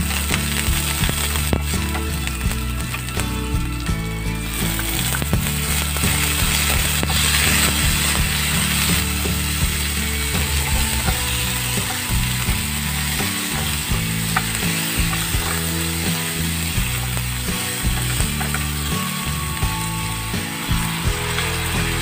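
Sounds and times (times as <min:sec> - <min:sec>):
food sizzling in hot oil: 0:00.0 - 0:22.0
spatula scraping and tapping pan: 0:04.6 - 0:19.8.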